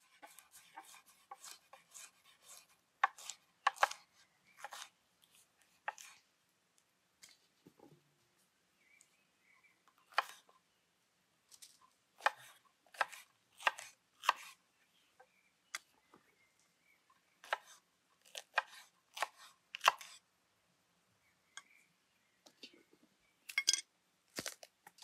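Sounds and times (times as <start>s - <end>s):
knife cutting on wooden board: 0.1s - 4.0s, 4.6s - 4.9s, 5.9s - 6.2s, 12.2s - 14.6s, 17.4s - 20.2s.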